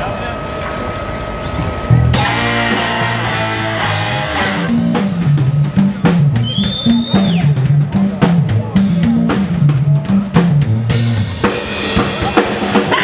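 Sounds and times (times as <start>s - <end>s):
bass guitar: 1.4s - 13.0s
drum kit groove: 1.6s - 13.0s
high note sliding down: 1.9s - 5.3s
horn section holding a chord: 2.1s - 4.8s.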